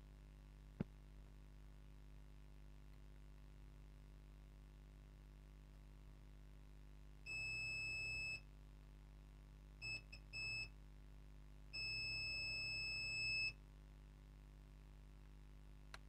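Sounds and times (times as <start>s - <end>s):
multimeter continuity beeps: 7.3s - 8.5s, 9.8s - 10.8s, 11.8s - 13.6s.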